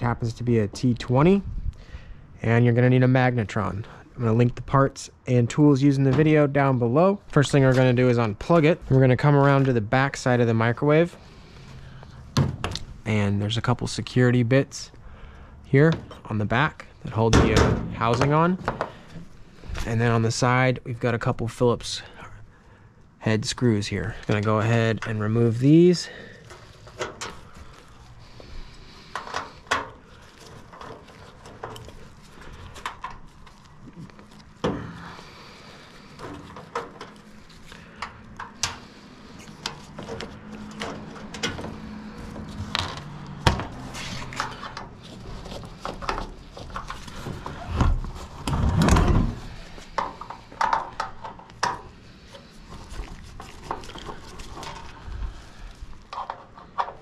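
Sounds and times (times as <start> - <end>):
handling noise: 23.9 - 57.0.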